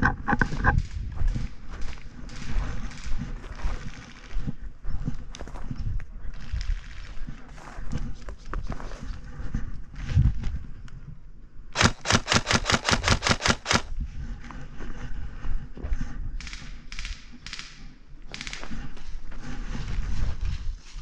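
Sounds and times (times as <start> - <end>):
airsoft rifle shots: 11.8 - 13.9.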